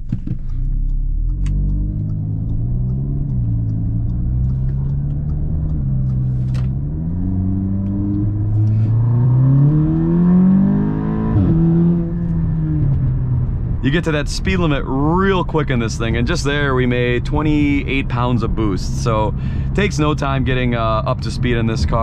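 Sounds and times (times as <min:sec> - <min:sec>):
gearbox upshifts: 0:00.0 - 0:10.4
car engine accelerating hard: 0:00.4 - 0:22.0.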